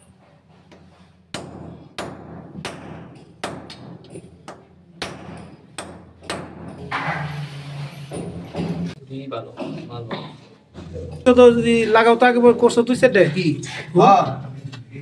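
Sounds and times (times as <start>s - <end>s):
hammer striking metal: 1.3s - 7.4s.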